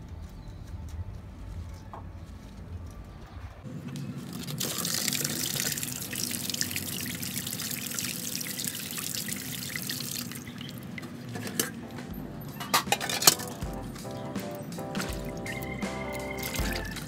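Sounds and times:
water dripping: 0:04.3 - 0:11.9.

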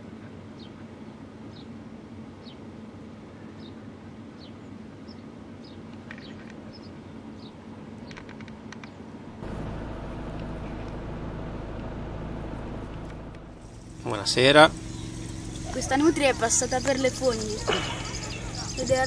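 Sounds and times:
low rumble: 0:09.3 - 0:18.8
small bird chirping: 0:13.6 - 0:19.0.

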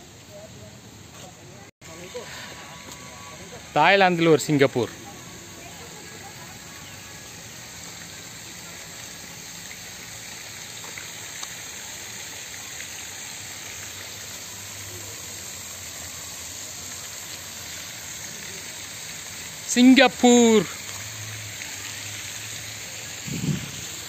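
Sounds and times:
fountain water jet splashing: 0:00.0 - 0:24.0.

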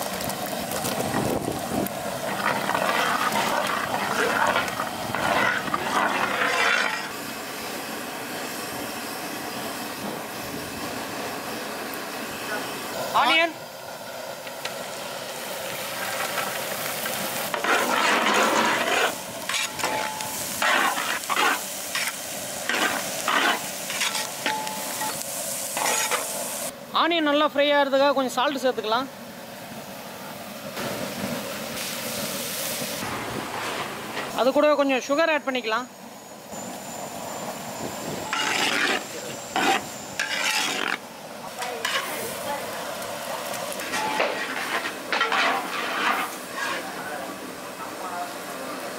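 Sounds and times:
onions sizzling in butter: 0:00.0 - 0:26.7, 0:30.7 - 0:35.2, 0:36.5 - 0:47.6
metal ladle scraping pot: 0:02.3 - 0:07.2, 0:25.8 - 0:26.3, 0:38.3 - 0:41.0, 0:43.8 - 0:47.0
metal utensil scraping pot: 0:02.3 - 0:07.2, 0:17.5 - 0:25.2, 0:25.8 - 0:26.3, 0:38.3 - 0:41.0.

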